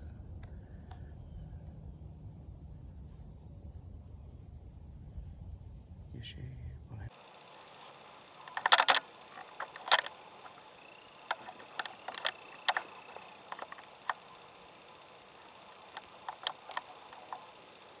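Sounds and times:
insect drone: 0:00.0 - 0:18.0
sharp clicks and crackles: 0:08.4 - 0:18.0.

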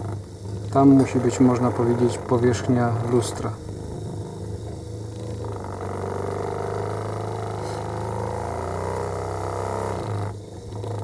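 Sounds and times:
drill motor running: 0:00.0 - 0:11.0
metal rubbing on metal: 0:00.0 - 0:11.0.

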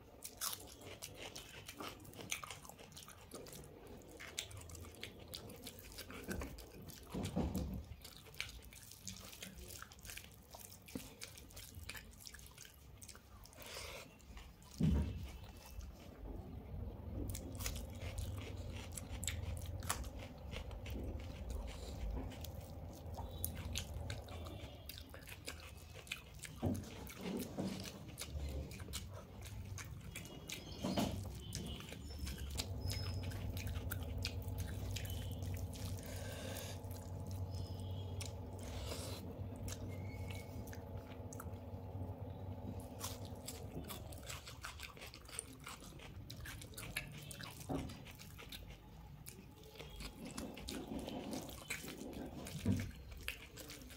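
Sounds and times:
wet chewing: 0:00.0 - 0:53.9
fingers squelching food: 0:17.2 - 0:53.9.

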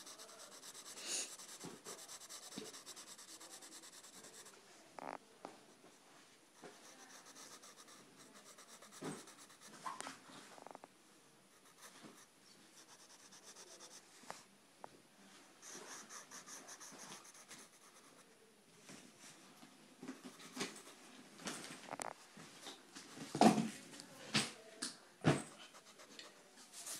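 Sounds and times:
pencil scratching on paper: 0:00.0 - 0:04.6, 0:06.6 - 0:10.0, 0:11.5 - 0:14.4, 0:15.6 - 0:18.4, 0:20.2 - 0:21.0, 0:25.4 - 0:26.9.

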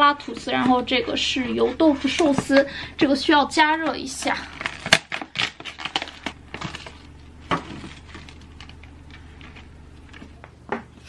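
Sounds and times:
plastic packaging crinkling: 0:04.0 - 0:10.6.

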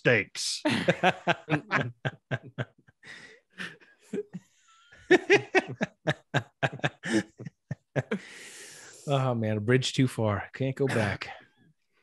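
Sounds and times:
men laughing: 0:00.7 - 0:08.4, 0:10.9 - 0:11.3.

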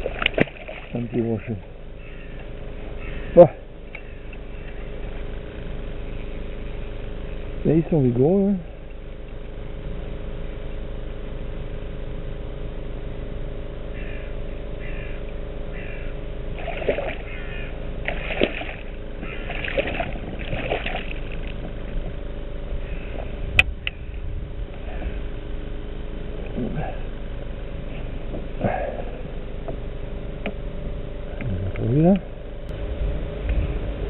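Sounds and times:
fish splashing in water: 0:00.0 - 0:01.2, 0:16.5 - 0:22.0
low hum: 0:00.0 - 0:34.0.

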